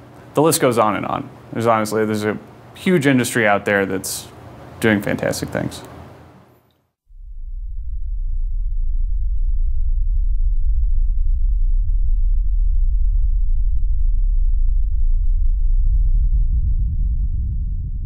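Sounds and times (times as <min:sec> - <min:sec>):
deep steady rumble: 0:07.1 - 0:18.0.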